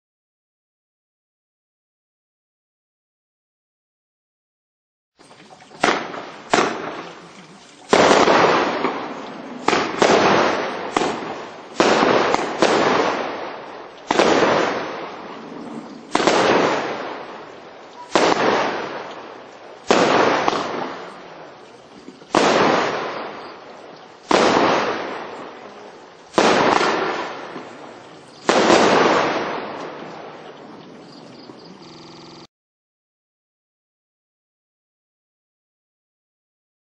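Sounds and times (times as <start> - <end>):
fireworks bangs: 5.6 - 32.5.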